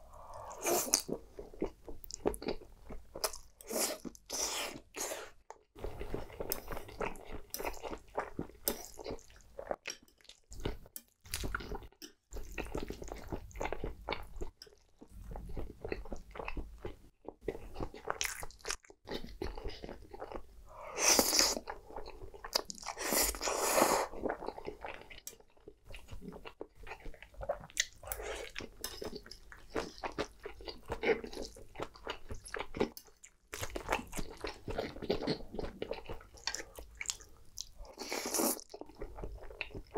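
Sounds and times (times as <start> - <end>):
slurping noodles: 22.9 - 24.2
wet chewing and mouth smacks: 24.1 - 39.9.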